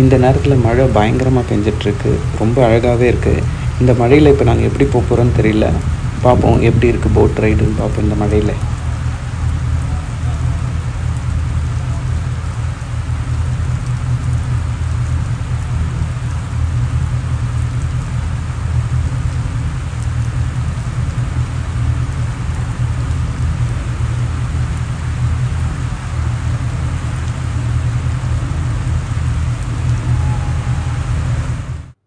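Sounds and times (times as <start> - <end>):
heavy rain pouring: 0.0 - 32.0.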